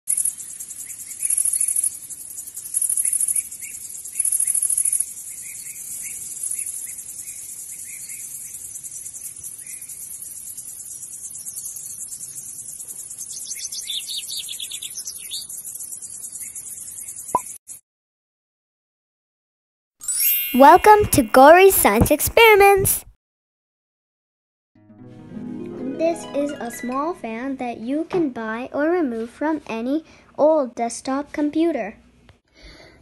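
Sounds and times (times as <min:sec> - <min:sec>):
birds chirping: 0:00.4 - 0:17.5.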